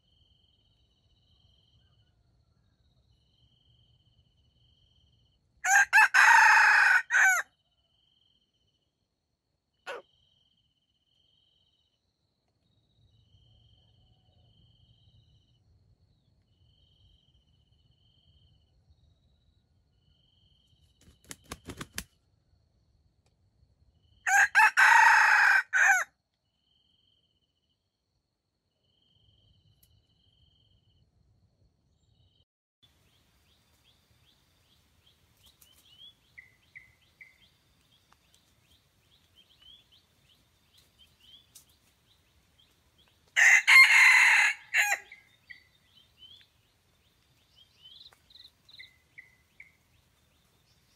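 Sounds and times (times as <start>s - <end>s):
rooster crowing: 5.6s - 7.5s, 24.3s - 26.1s, 43.4s - 45.3s.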